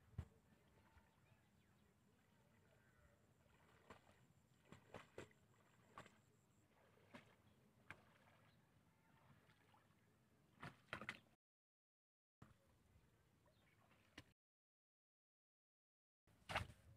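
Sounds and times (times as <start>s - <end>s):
wading through shallow water: 0.0s - 11.4s.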